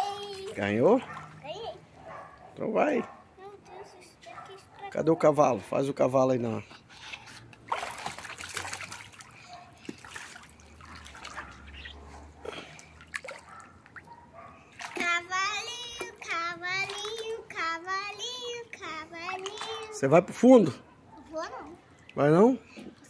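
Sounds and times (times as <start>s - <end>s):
girl singing wordless tune: 0.0s - 0.6s, 14.9s - 20.0s
pool water splashing: 0.0s - 23.0s.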